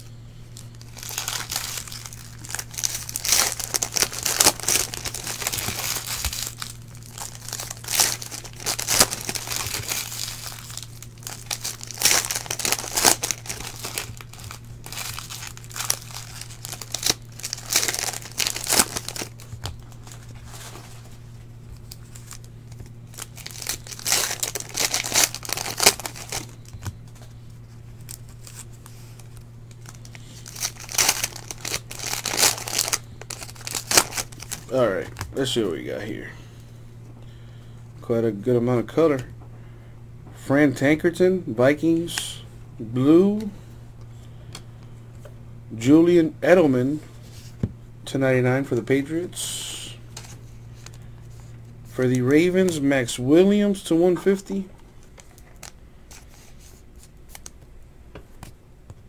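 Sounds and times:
plastic wrappers tearing and crinkling: 0.6s - 21.1s, 21.7s - 35.4s, 54.5s - 57.6s.

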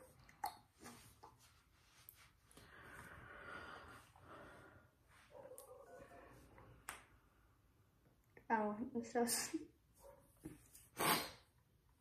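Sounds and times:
soft rustle: 0.8s - 3.2s.

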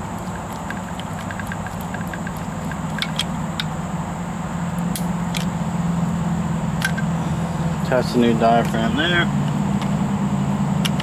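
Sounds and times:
low mechanical hum: 0.0s - 11.0s
sharp metallic clicks: 0.1s - 3.8s.

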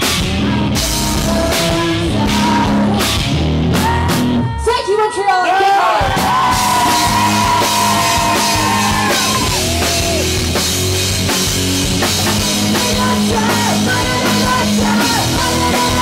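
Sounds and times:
distorted electric guitar: 0.0s - 4.6s, 6.1s - 16.0s
drum kit: 0.0s - 4.7s, 5.9s - 16.0s
bass guitar: 0.0s - 4.8s, 6.0s - 16.0s
woman singing: 0.2s - 5.5s, 12.4s - 16.0s.

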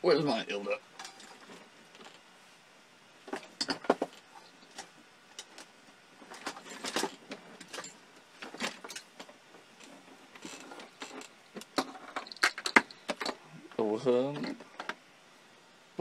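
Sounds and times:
objects clattering on workbench: 1.0s - 2.2s, 3.2s - 13.4s, 14.3s - 15.0s.

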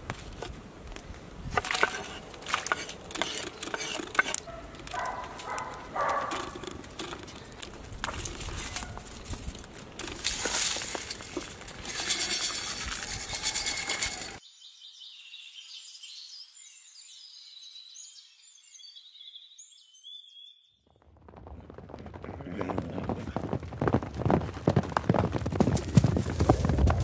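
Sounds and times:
outdoor crackles and rustling: 0.0s - 14.4s, 20.9s - 27.0s
birds chirping: 1.2s - 9.1s.

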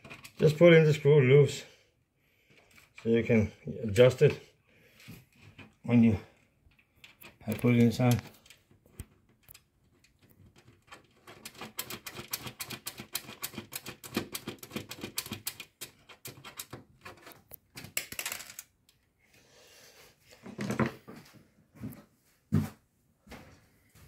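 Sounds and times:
screws clicking as turned: 11.3s - 16.8s.

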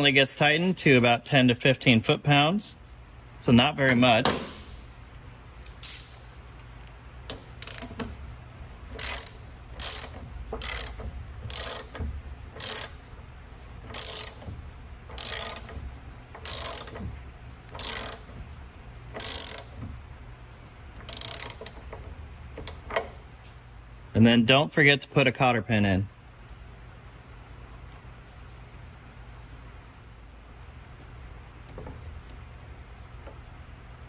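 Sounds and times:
socket ratchet clicking: 5.6s - 20.0s, 20.9s - 23.2s.

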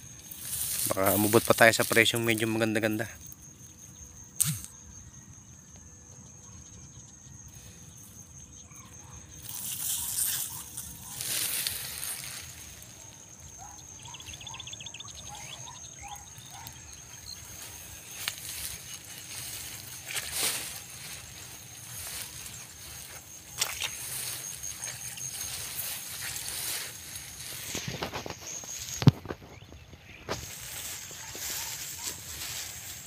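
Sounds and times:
rustling of rice plants: 0.0s - 3.1s, 9.4s - 14.0s, 15.6s - 33.0s
sharp click: 4.4s - 4.8s
faint short chirping calls: 8.5s - 32.7s.

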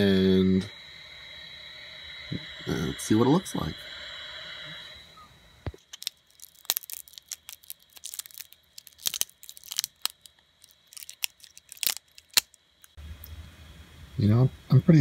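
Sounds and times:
plastic supports cracking and snapping: 5.8s - 12.9s.

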